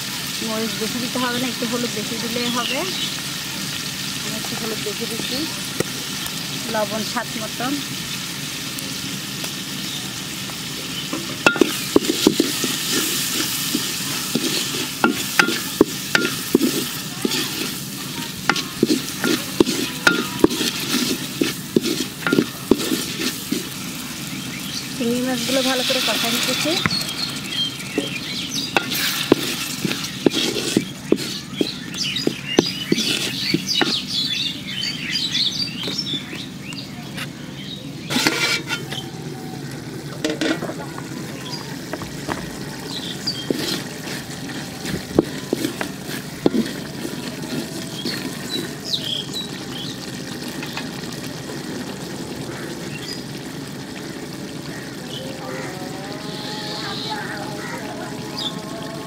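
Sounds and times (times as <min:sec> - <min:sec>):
shrimp sizzling in oil: 0:00.0 - 0:59.0
spatula scraping a pot: 0:11.4 - 0:24.1, 0:25.3 - 0:34.2, 0:38.1 - 0:39.0, 0:42.9 - 0:50.1.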